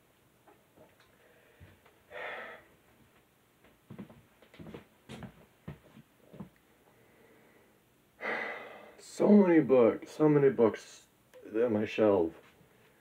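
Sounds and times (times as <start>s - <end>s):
person exhaling: 1.2s - 2.7s, 7.0s - 9.0s
soft footsteps on floor: 2.8s - 6.6s.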